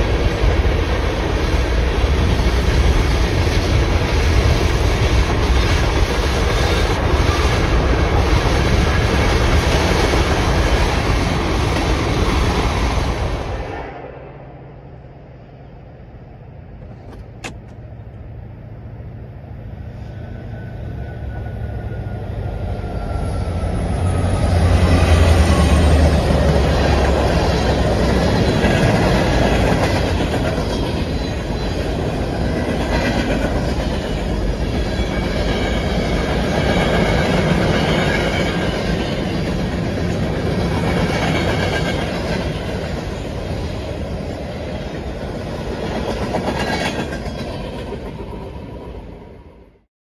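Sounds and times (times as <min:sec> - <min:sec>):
train wheels clickety-clack: 0:00.0 - 0:13.6, 0:23.9 - 0:49.2
diesel locomotive engine rumble: 0:00.0 - 0:49.9.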